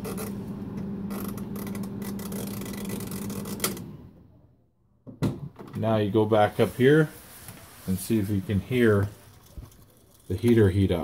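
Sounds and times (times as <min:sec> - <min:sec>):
freezer fan humming: 0:00.0 - 0:04.4.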